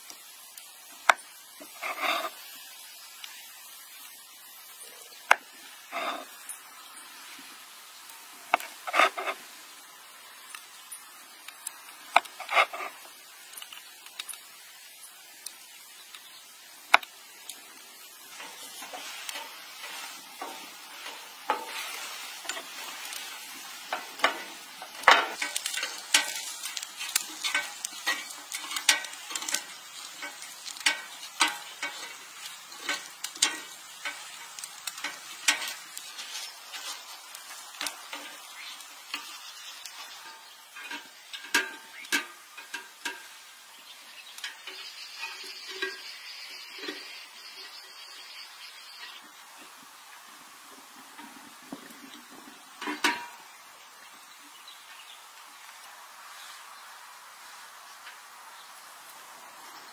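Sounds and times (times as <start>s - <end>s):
food sizzling on griddle pan: 0.0s - 59.9s
chopsticks clicking against pan: 21.0s - 37.0s.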